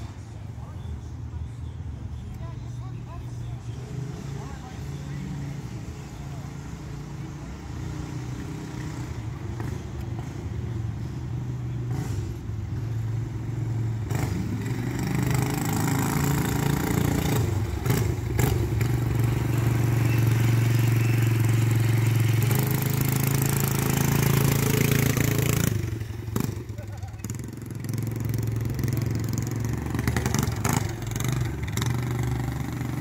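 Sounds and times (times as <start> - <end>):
mini bike engine running: 12.9 - 33.0.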